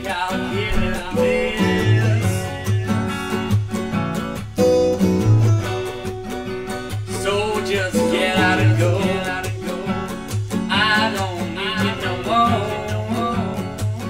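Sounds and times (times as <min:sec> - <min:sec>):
strummed acoustic guitar: 0:00.0 - 0:14.0
bass line: 0:00.5 - 0:03.7
wavering melody line: 0:00.7 - 0:03.4.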